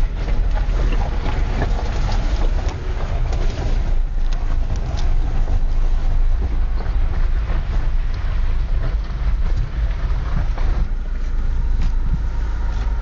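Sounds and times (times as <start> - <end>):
stones crackling under tyres: 0.0 - 13.0
tyres and engine rumble: 0.0 - 13.0.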